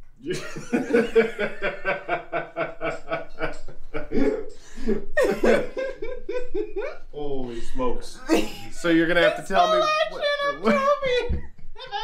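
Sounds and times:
person snickering: 0.2 - 7.0.

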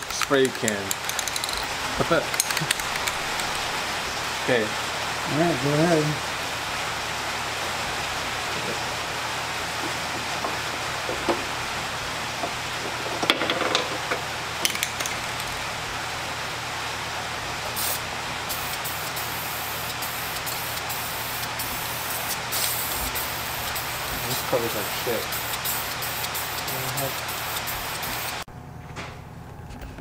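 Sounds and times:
sharp clicks: 0.0 - 3.6
aerosol spray can hissing: 17.7 - 28.5.

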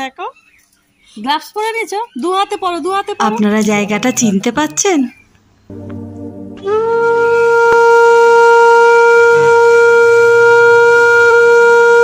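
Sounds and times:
long blown horn note: 5.7 - 12.0.

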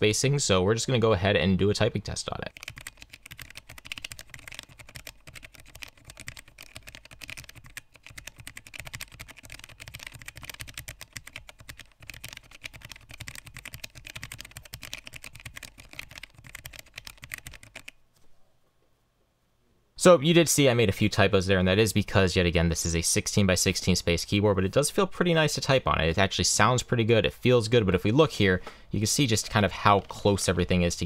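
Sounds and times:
fast typing on mechanical keyboard: 2.5 - 18.0.

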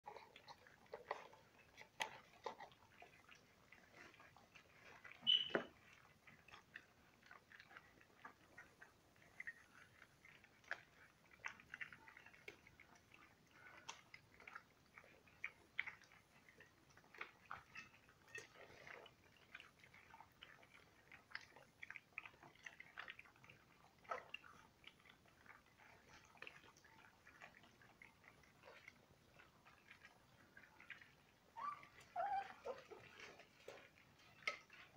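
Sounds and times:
puppies lapping and smacking: 0.0 - 34.9
brief high squeak: 5.2 - 5.7.

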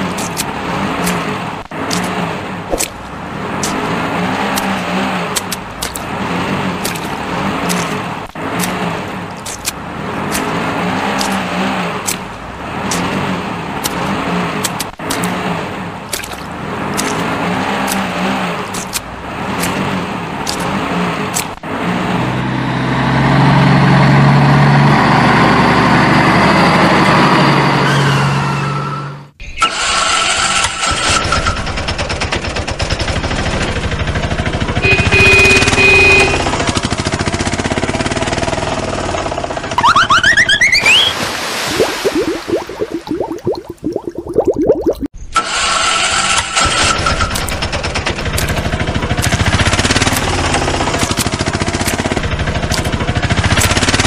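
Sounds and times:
pulsing engine with clicks: 29.6 - 39.8, 45.4 - 54.0
rattling engine: 29.6 - 39.8, 45.4 - 54.0
short high-pitched tones: 39.8 - 43.0
steady engine drone: 45.4 - 54.0.

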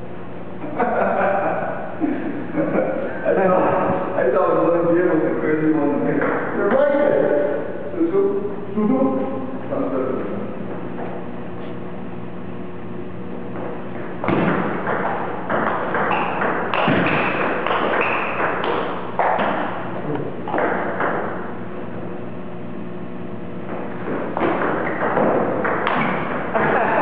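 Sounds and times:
steady low hum: 0.0 - 27.0
table tennis ball hits: 14.2 - 19.8, 20.5 - 21.4, 24.0 - 26.9.

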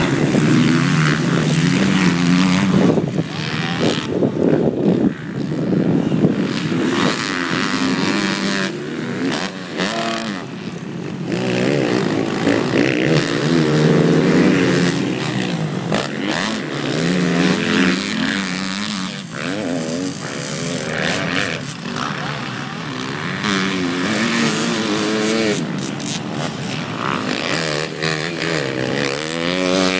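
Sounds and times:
dirt bike engines revving: 0.0 - 29.9.

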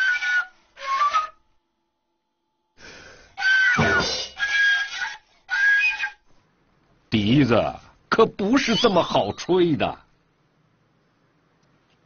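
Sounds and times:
bamboo flute playing high notes: 0.0 - 1.5, 3.4 - 6.3.

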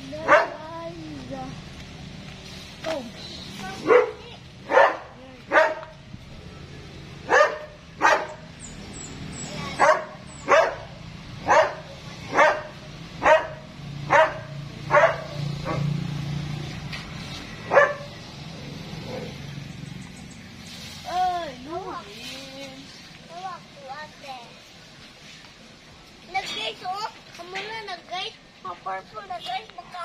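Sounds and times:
dog barking: 0.2 - 0.6, 3.8 - 5.9, 7.3 - 8.4, 9.8 - 15.9, 17.7 - 18.1.

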